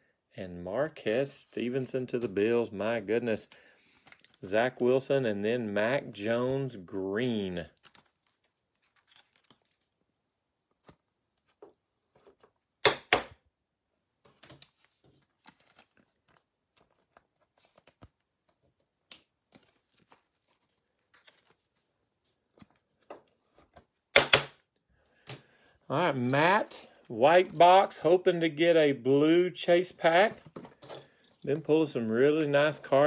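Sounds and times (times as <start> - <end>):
trading cards shuffling: 7.2 - 10.0, 10.7 - 12.6, 14.2 - 24.6, 29.8 - 33.0.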